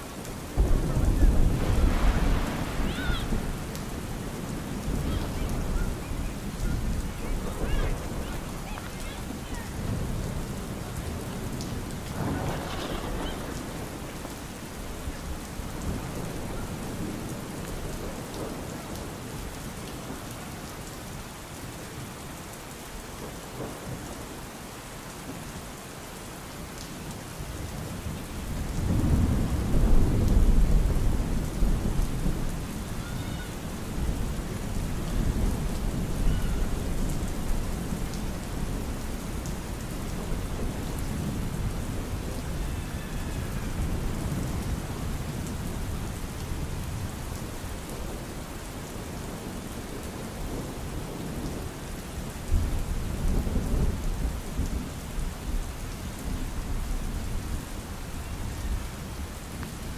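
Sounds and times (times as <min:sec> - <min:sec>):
steady rain: 0:00.0 - 0:59.9
thunder rumbling: 0:00.3 - 0:19.4, 0:27.8 - 0:48.3.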